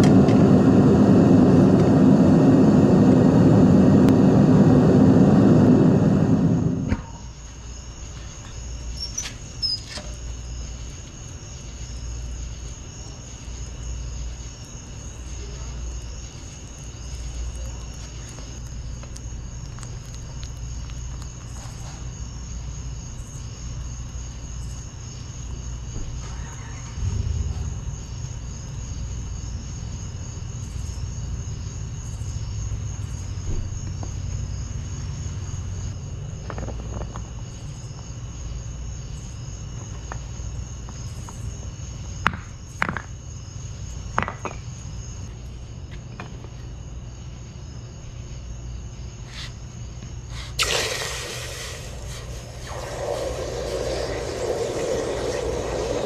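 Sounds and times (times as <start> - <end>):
furnace roaring: 0.0 - 7.7, 50.4 - 56.0.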